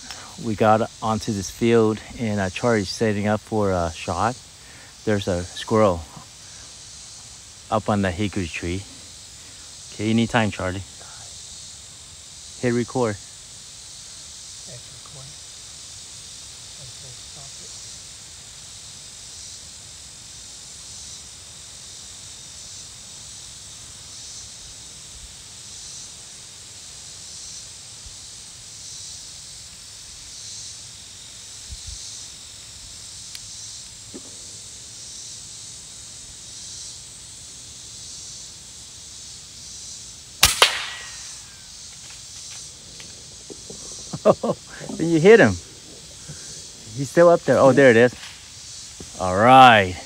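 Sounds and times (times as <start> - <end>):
insect chorus pulsing: 0.0 - 50.0
air rifle shot: 40.4 - 41.5.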